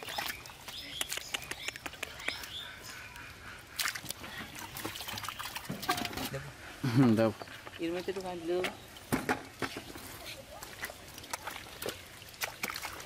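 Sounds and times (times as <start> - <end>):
hands squelching in wet mud: 0.0 - 6.0, 10.0 - 13.0.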